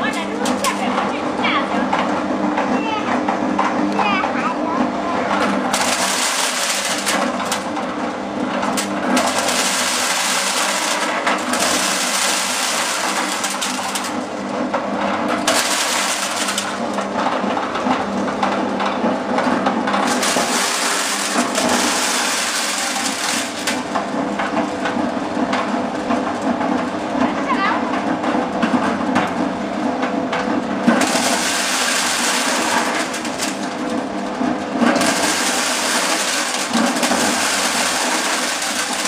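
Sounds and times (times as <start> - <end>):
threshing machine humming: 0.0 - 39.0
corn kernels crackling and rattling: 5.7 - 7.7, 8.7 - 14.3, 15.4 - 16.8, 20.0 - 23.9, 30.9 - 34.0, 34.8 - 39.0.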